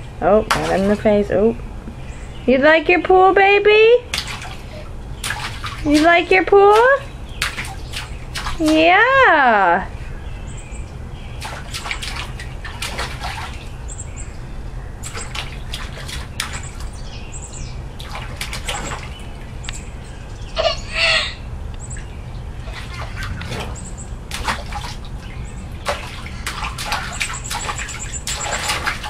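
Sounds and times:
faint birds chirping: 0.0s - 28.7s
water splashing by hands: 0.5s - 1.2s, 4.1s - 8.9s, 11.4s - 13.8s, 15.0s - 17.0s, 18.0s - 19.5s, 22.6s - 29.0s.

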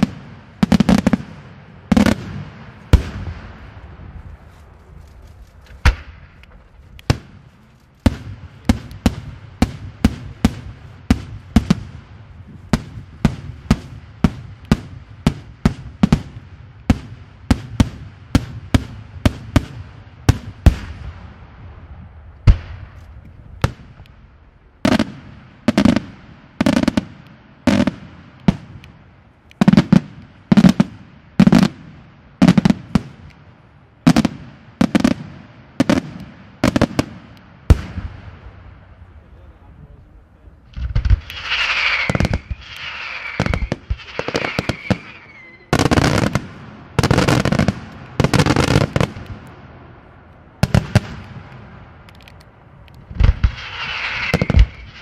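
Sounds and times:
firework shells bursting: 40.7s - 49.6s, 50.6s - 55.0s.

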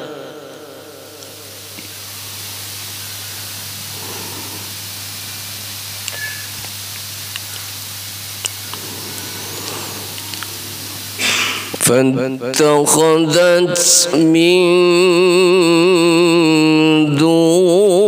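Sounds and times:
low even hum: 0.0s - 17.2s
microphone hiss: 0.0s - 18.0s
faint clicks: 8.4s - 11.1s.

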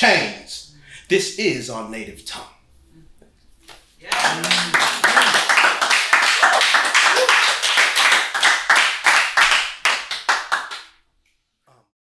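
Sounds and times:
small audience clapping: 4.0s - 11.0s.

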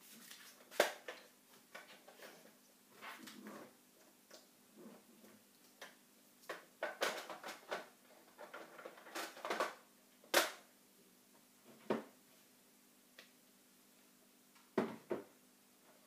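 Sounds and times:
plastic clicks and rattles: 5.8s - 10.6s
knock: 14.8s - 15.3s.

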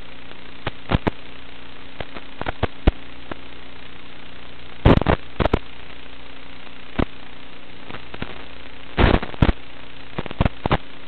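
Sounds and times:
hiss and hum of video link audio: 0.0s - 11.0s
loud crackling pops: 0.6s - 1.2s, 2.0s - 3.4s, 4.8s - 5.7s, 7.9s - 10.9s.

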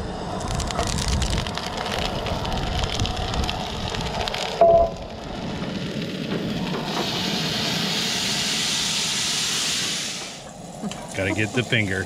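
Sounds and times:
skillet sizzling: 4.7s - 12.0s.

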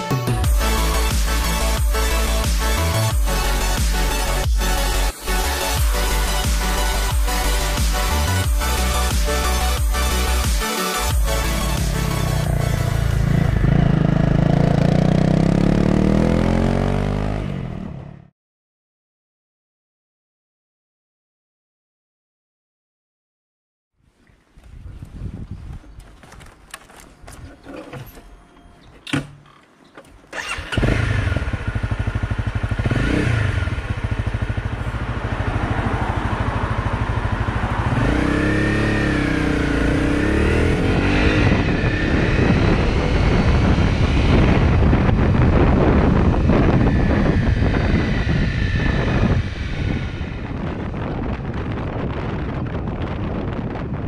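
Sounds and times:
motorcycle engine revving: 0.5s - 18.3s, 30.3s - 52.7s.

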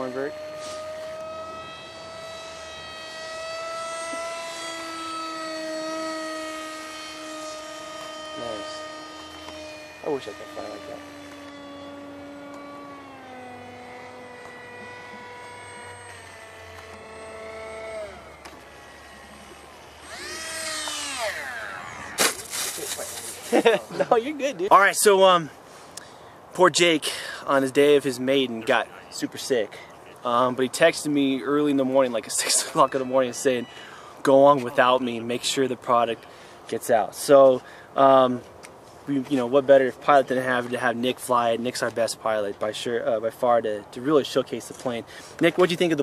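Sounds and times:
lower motor tone: 0.0s - 23.8s
electric motor whining: 0.0s - 25.1s, 30.1s - 38.2s.

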